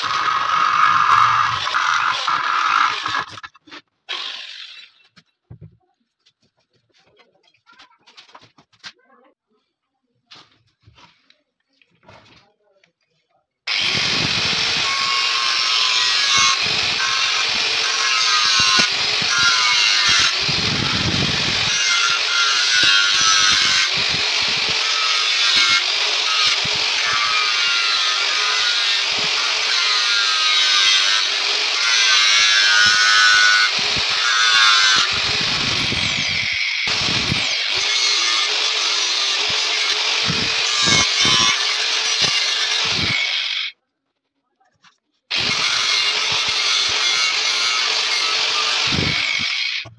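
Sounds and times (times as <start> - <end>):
angle grinder cutting metal: 0.0 - 5.1, 13.7 - 43.8, 45.3 - 49.9.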